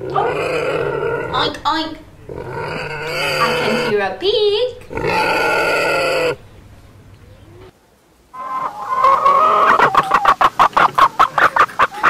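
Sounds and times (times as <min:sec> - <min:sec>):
hen clucking: 0:00.0 - 0:04.1, 0:04.8 - 0:07.7, 0:08.3 - 0:12.0
pig grunt: 0:02.2 - 0:04.0, 0:04.9 - 0:06.4.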